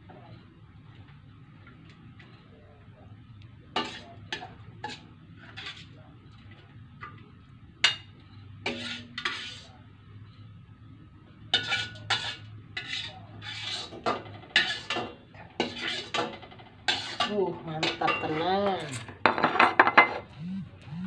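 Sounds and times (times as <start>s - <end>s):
metal spatula scraping a wok: 3.7s - 6.0s, 8.6s - 9.8s, 11.5s - 20.3s.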